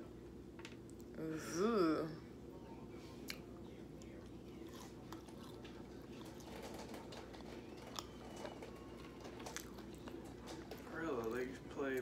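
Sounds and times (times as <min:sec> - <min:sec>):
chewing food: 0:03.2 - 0:12.0.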